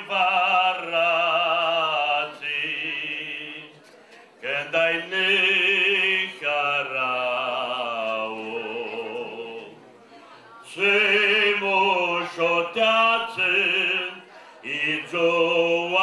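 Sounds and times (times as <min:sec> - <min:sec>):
man singing a slow ballad: 0:10.7 - 0:16.0.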